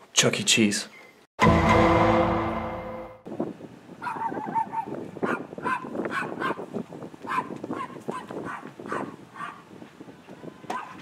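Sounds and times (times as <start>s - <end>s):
small dog barking: 4.0s - 6.6s, 7.2s - 9.7s, 10.7s - 11.0s.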